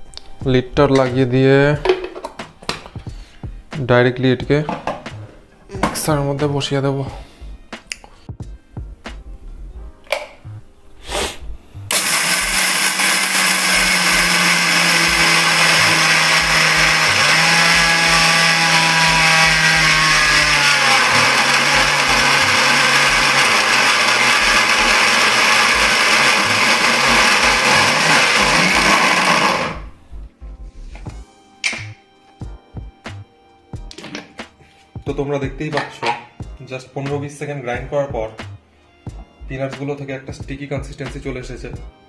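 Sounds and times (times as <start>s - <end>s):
electric mixer grinder running: 11.9s - 29.9s.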